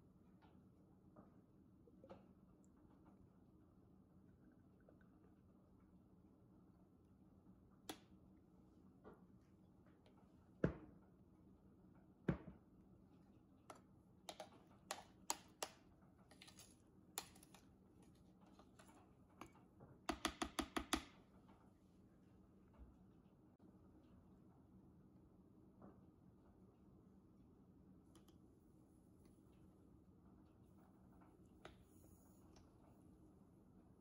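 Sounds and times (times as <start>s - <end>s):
metal spoon knocking plastic bowl: 20.1s - 21.1s.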